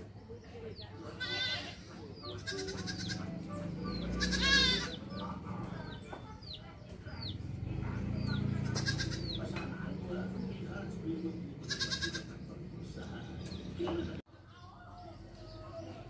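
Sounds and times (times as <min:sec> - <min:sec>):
goat kids bleating: 0:01.1 - 0:05.2, 0:08.5 - 0:09.6, 0:11.6 - 0:12.4.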